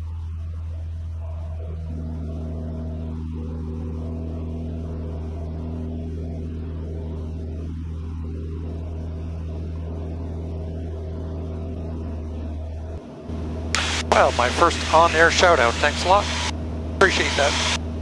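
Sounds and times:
aircraft engine and propeller drone: 0.1 - 18.0.

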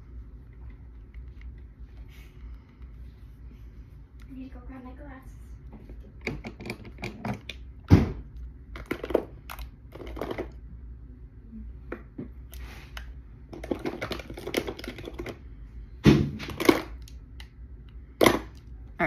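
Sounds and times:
small hard objects clattering: 8.8 - 10.6, 13.5 - 15.4.

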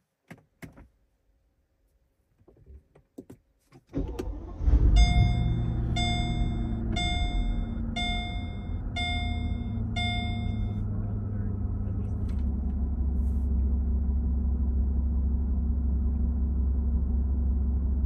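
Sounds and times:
car engine starting and idling: 3.9 - 18.0
seatbelt warning chime: 4.9 - 10.8.

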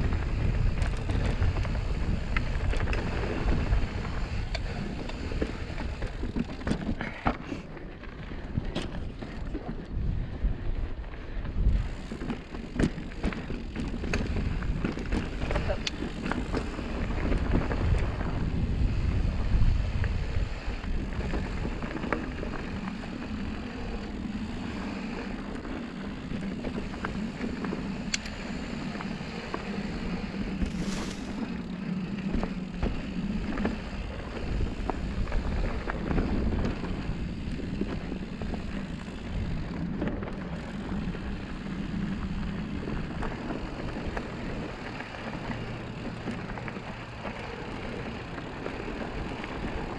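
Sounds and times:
wind buffeting microphone: 0.0 - 7.3, 8.2 - 49.9
tyres rolling over dirt and stones: 0.0 - 10.0, 11.5 - 49.9
bike clicks and rattles: 0.0 - 49.9.

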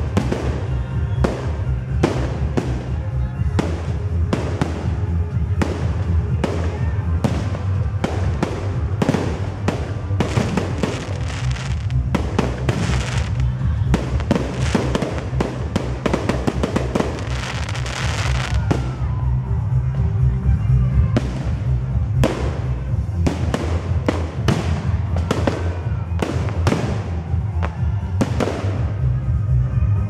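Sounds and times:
crackling firework glitter: 0.0 - 20.4
music: 0.0 - 30.0.

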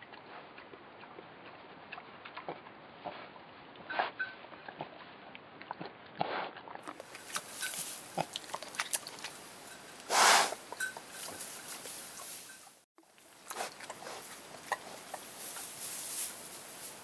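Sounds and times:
rustling straw: 7.1 - 8.6, 9.2 - 12.8, 13.6 - 17.0.

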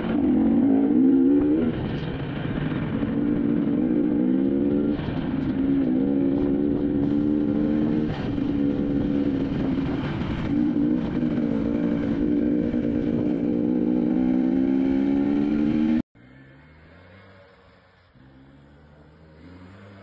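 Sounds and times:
dirt bike engine running: 0.0 - 16.0.

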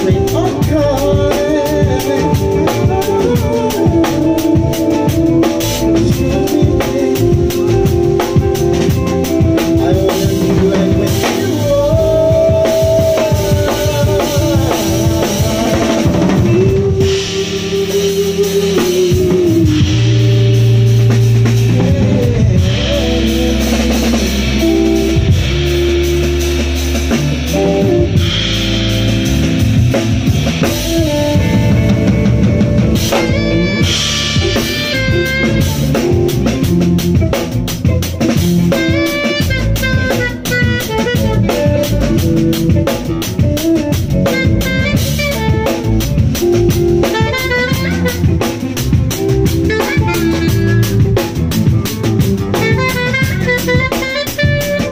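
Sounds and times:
drum kit with cymbals: 0.0 - 54.9
electric bass: 0.0 - 54.9
fast melodic solo: 0.0 - 54.9.

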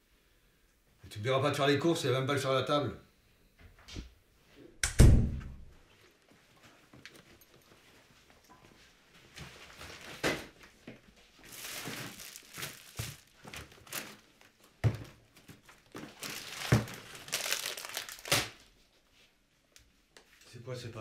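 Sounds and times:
plastic bag crinkling: 11.4 - 18.7.

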